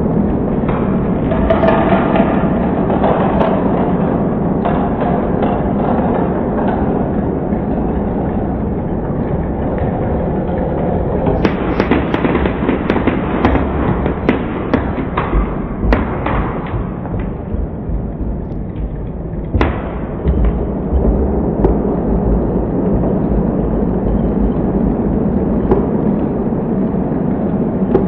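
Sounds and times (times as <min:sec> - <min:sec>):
loud knock: 0:25.6 - 0:26.2.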